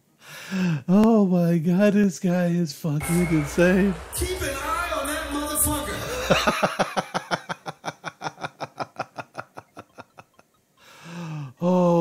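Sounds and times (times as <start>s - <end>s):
man laughing hard: 6.0s - 10.5s.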